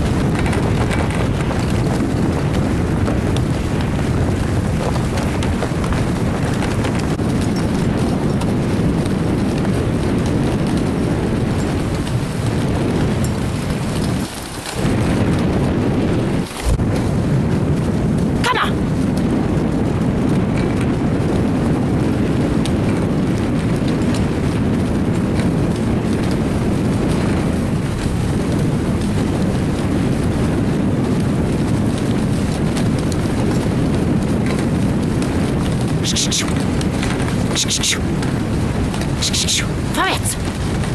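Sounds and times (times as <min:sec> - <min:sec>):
dog sled rumbling over snow: 0:00.0 - 0:40.9.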